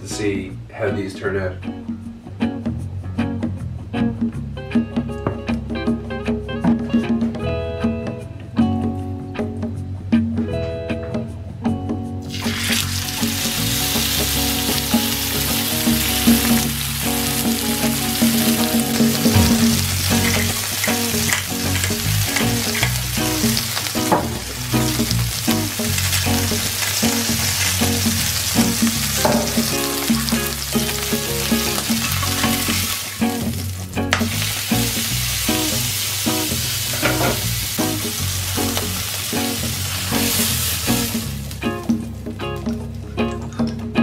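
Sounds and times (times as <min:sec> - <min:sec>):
background music: 0:00.0 - 0:44.0
burger sizzling in frying pan: 0:12.3 - 0:41.8.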